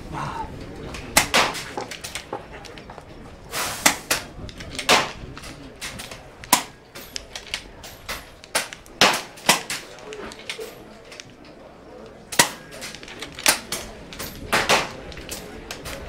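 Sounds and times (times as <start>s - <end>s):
air rifles firing sharp cracks: 1.1s - 2.3s, 3.5s - 11.3s, 12.3s - 16.0s.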